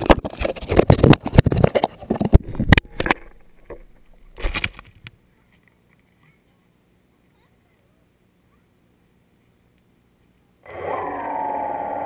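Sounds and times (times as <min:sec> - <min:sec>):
microphone handling rustling: 0:00.0 - 0:05.1.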